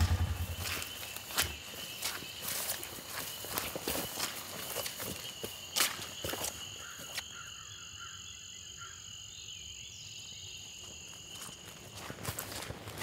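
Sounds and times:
footsteps through wet grass: 0.0s - 7.2s, 11.3s - 13.0s
frogs trilling: 0.0s - 12.6s.

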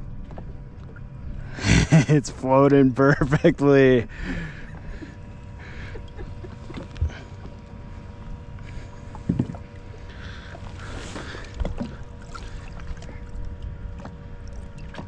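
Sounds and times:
faint steady hum: 0.0s - 15.0s
low rumble: 0.0s - 15.0s
water slapping against boat hull: 9.0s - 15.0s.

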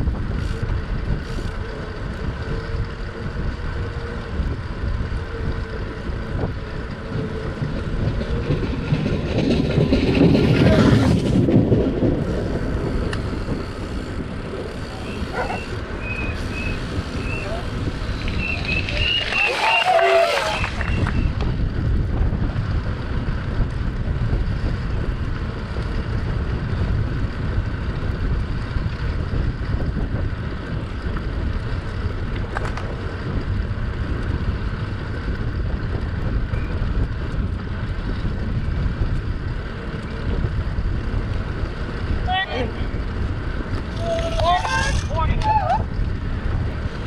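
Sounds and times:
wind buffeting microphone: 0.0s - 47.0s.

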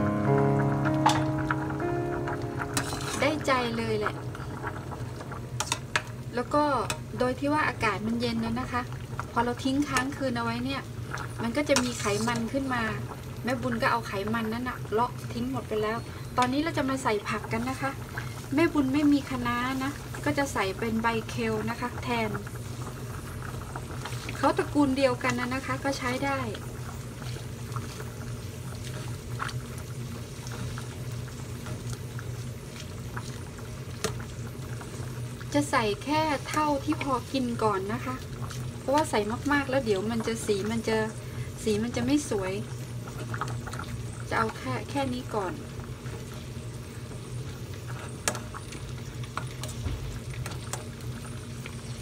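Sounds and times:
low hum: 0.0s - 7.0s
low steady hum: 0.0s - 29.9s
broth bubbling in a pot: 0.0s - 52.0s
metal ladle clinking in pot: 2.8s - 3.3s.

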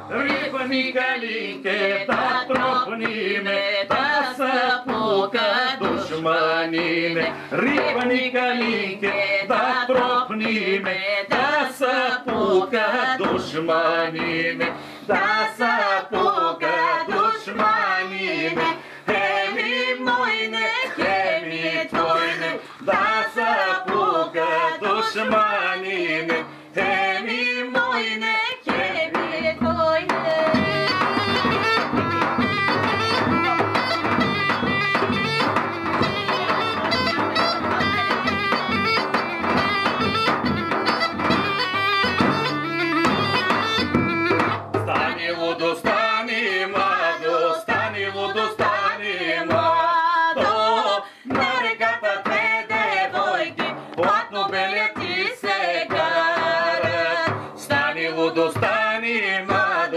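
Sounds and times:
drum beating: 0.0s - 59.9s
people singing: 0.0s - 59.9s
bagpipe melody with drone: 30.7s - 44.5s.

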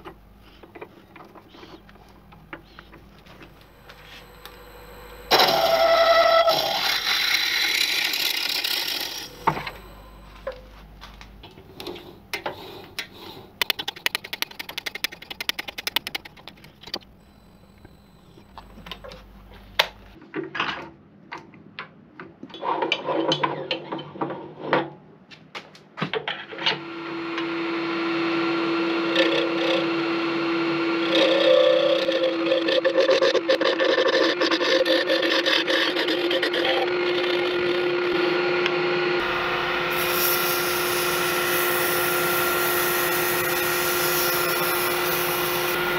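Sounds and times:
lathe motor hum: 1.3s - 11.0s, 26.8s - 45.9s
drill bit boring into wood: 3.6s - 10.2s, 28.6s - 38.4s, 39.2s - 45.9s.

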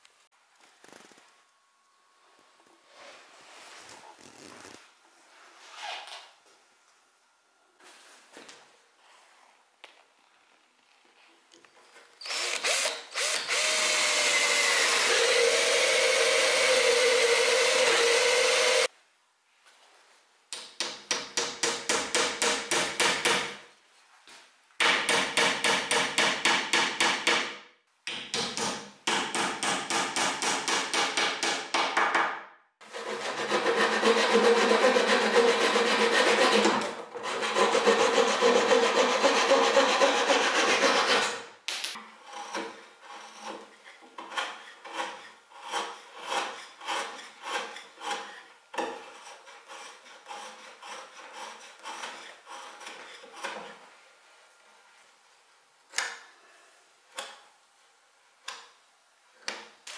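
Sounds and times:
cordless drill boring wood: 12.2s - 18.9s
hand saw cutting wood: 12.3s - 18.9s, 32.8s - 41.5s, 42.2s - 53.8s.

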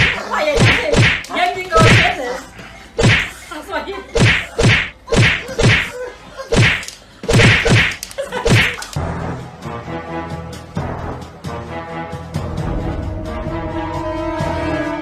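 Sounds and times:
sharp slapping whacks: 0.0s - 2.2s, 3.0s - 3.4s, 4.2s - 5.9s, 6.5s - 9.0s
music: 9.0s - 15.0s.

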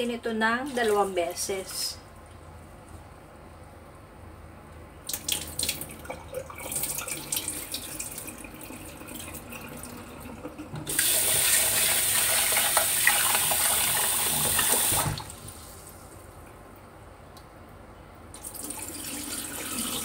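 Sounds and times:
faucet running into pot: 5.1s - 15.2s
water splashing into sink: 5.1s - 15.6s.

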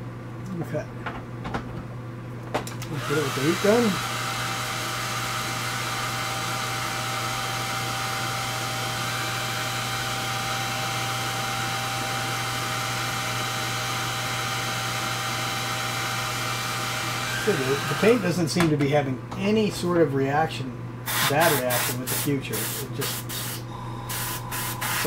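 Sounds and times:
hair dryer running: 2.8s - 18.4s, 23.1s - 25.0s.

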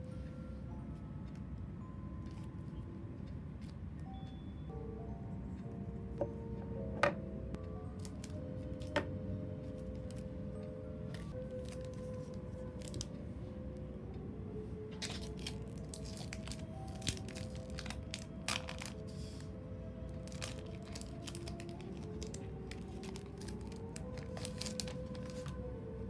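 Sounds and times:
soft background music: 0.0s - 26.0s
paper crinkling and tearing: 15.0s - 19.4s, 20.2s - 25.6s.

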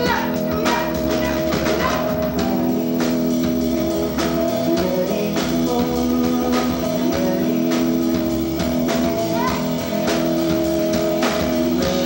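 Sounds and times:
drum kit with cymbals: 0.0s - 12.0s
electric guitar: 0.0s - 12.0s
person singing: 0.0s - 12.0s.

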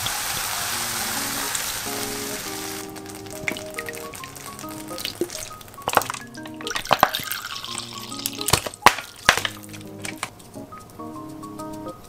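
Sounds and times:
mushrooms sizzling in a pan: 0.0s - 6.4s
soft background music: 0.5s - 12.0s.

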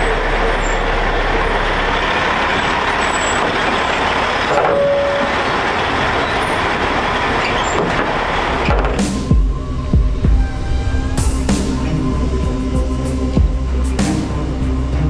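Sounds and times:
truck diesel engine rumbling: 0.0s - 15.0s
short squeak: 2.6s - 5.5s, 7.4s - 9.2s.

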